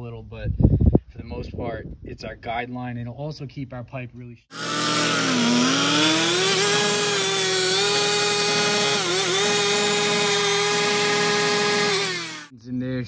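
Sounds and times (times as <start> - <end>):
abrasive disc cutting metal pipe: 4.5 - 12.5
cut-off saw engine at high revs: 4.5 - 12.5.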